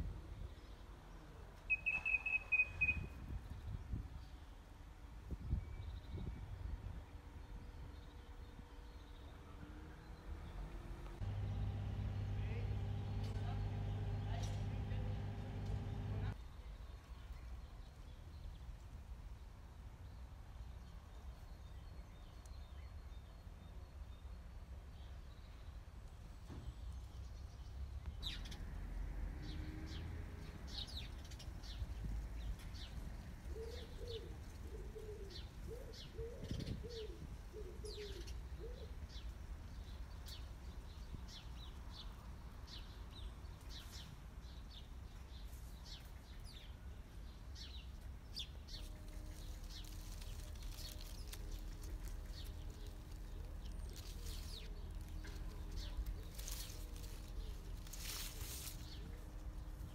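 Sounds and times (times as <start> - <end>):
small birds chirping: 7.4 - 18.9, 26.6 - 28.8, 29.4 - 59.9
low outdoor rumble: 9.3 - 16.4, 48.5 - 59.9
dove cooing: 33.4 - 39.0.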